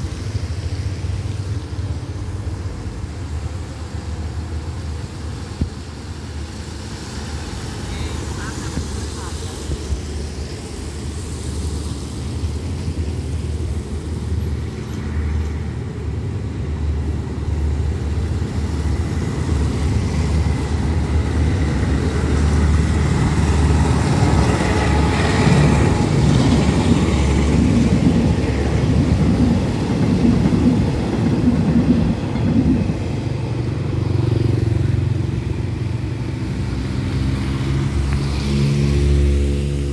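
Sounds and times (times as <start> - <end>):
diesel locomotive rumble: 0.0 - 39.9
road vehicle engine hum: 0.0 - 39.9
train wheels clattering on rails: 17.7 - 34.9.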